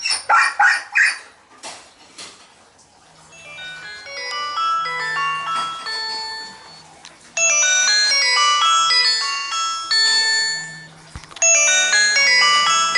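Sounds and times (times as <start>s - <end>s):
chiming bell-like melody: 3.3s - 12.9s.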